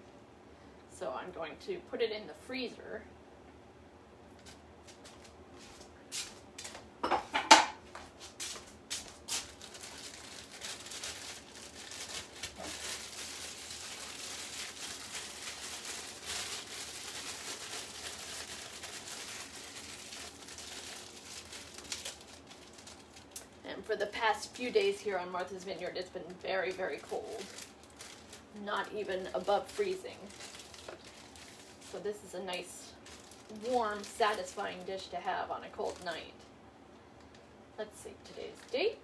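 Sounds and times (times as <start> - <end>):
kitchen things clattering: 7.0 - 7.8
plastic bag rustling: 8.1 - 36.3.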